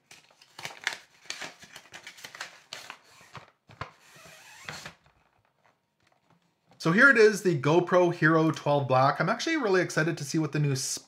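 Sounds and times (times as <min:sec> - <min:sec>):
packaging being torn open: 0:00.0 - 0:03.4
packaging rustling and scraping: 0:00.0 - 0:06.8.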